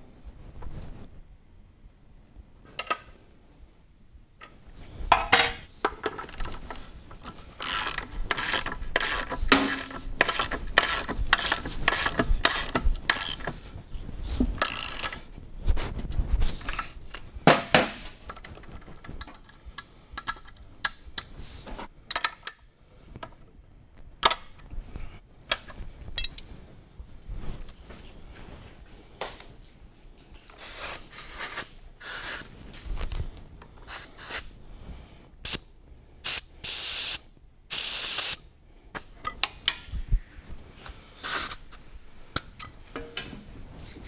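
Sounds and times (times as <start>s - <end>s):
metal tools clinking: 5.1s - 13.5s, 26.1s - 26.5s
ratchet wrench clicking: 7.6s - 13.5s, 14.6s - 15.2s.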